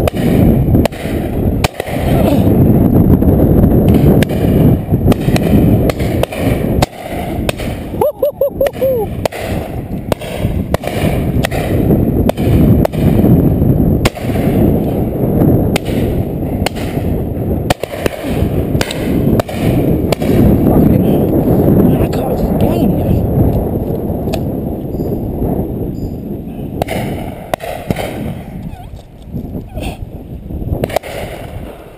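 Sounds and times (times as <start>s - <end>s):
shotguns firing: 0.0s - 2.7s, 3.8s - 8.0s, 9.1s - 20.8s, 26.8s - 28.5s, 30.8s - 31.9s
wind rumble on microphone: 0.0s - 31.9s.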